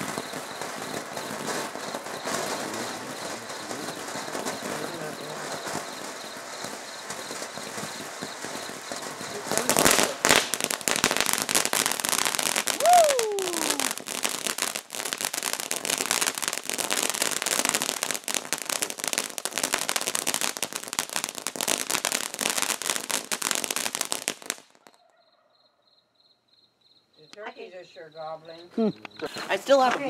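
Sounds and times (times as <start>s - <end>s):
firework spraying and crackling: 0.0s - 24.9s
crickets chirping: 0.0s - 30.0s.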